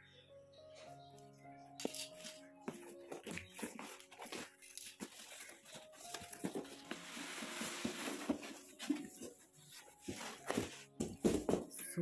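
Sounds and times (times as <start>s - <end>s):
scissors snipping through tape: 1.8s - 2.4s, 3.3s - 5.6s
cardboard clicks and rustles: 3.0s - 11.7s
package sliding out of box: 6.1s - 9.0s.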